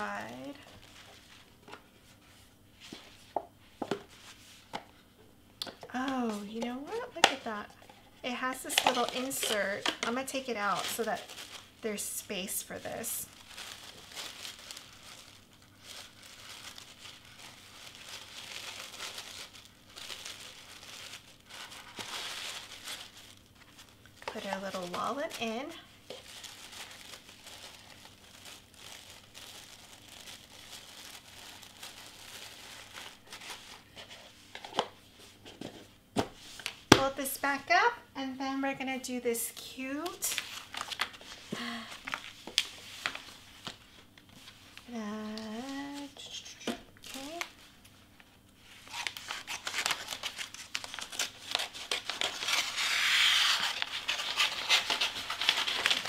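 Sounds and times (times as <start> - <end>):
tissue paper rustling: 0.0 - 4.8, 6.0 - 36.7, 40.2 - 46.2, 48.6 - 56.0.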